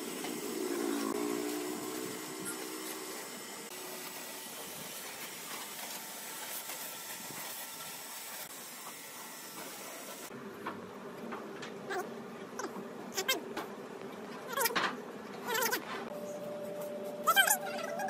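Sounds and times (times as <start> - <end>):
pressure washer spraying water: 0.0 - 10.3.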